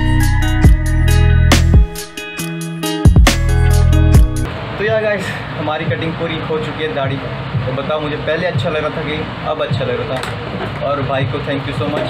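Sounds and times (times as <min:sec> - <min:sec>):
deep bass: 0:00.0 - 0:02.2, 0:02.8 - 0:04.5
plucked guitar-like notes: 0:00.0 - 0:04.5
falling bass hit: 0:03.1 - 0:04.5.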